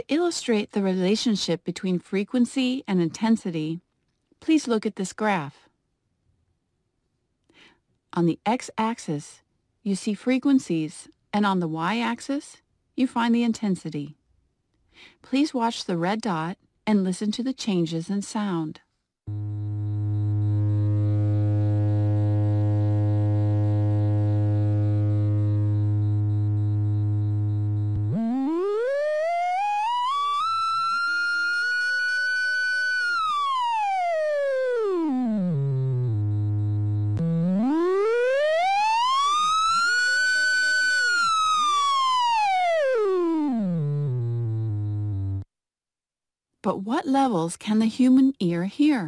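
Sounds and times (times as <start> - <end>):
low synthesized test tone: 19.3 - 45.4.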